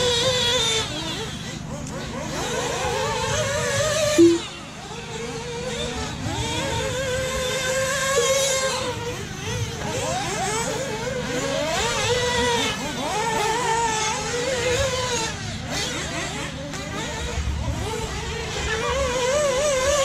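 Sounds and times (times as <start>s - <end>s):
toy car motors whining: 0.0s - 20.0s.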